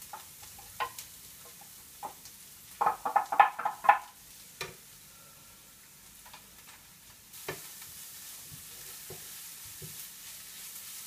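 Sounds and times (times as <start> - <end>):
wooden spatula knocking and scraping: 0.0 - 2.2, 2.8 - 4.8, 8.5 - 10.0
vegetables sizzling in a pan: 0.0 - 11.0.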